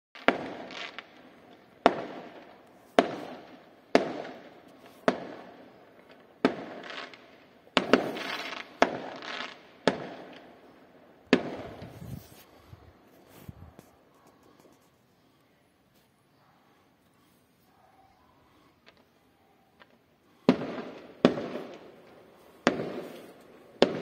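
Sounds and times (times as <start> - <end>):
firework shells bursting: 0.2 - 10.5.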